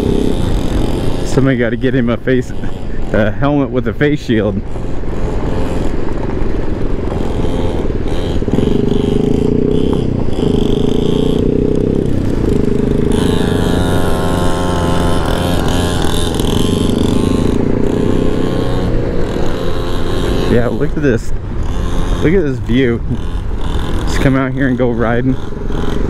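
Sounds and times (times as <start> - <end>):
scooter engine running: 0.0 - 26.0
higher-pitched engine note: 7.1 - 26.0.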